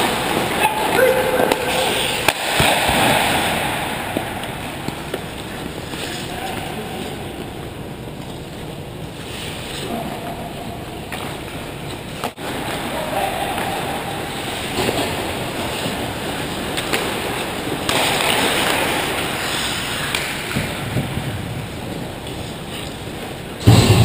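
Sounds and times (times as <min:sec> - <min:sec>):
skates scraping ice: 0:00.0 - 0:07.5, 0:09.2 - 0:10.1, 0:12.2 - 0:23.7
hockey sticks clacking: 0:04.1 - 0:06.8, 0:13.6 - 0:20.9
sharp knock: 0:23.6 - 0:24.0.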